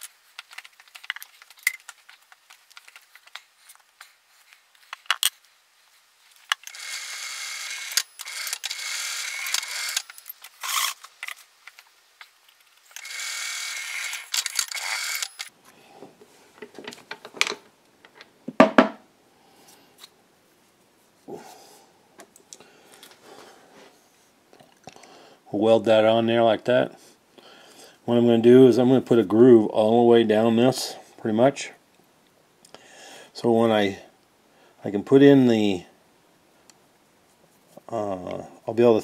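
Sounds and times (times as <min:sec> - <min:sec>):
rustling: 0:00.0 - 0:06.8
drill cutting through metal: 0:06.7 - 0:11.0, 0:13.0 - 0:15.5.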